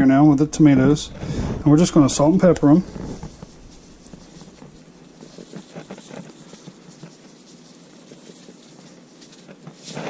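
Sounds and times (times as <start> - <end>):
seasoning shaker rattling: 3.4 - 10.0.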